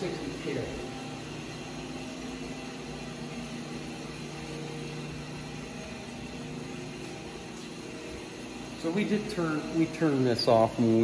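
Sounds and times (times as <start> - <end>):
shop machinery humming: 0.0 - 11.0.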